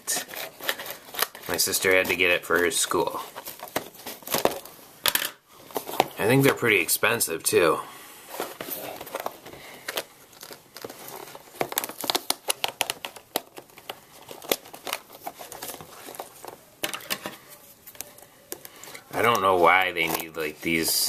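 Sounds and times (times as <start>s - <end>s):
plastic packaging crinkling: 0.0s - 6.7s, 8.3s - 21.0s.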